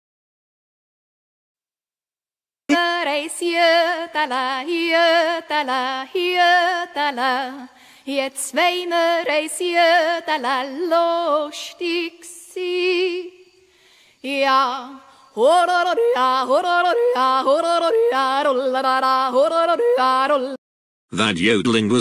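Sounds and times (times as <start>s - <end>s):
woman yodeling: 14.3s - 20.6s.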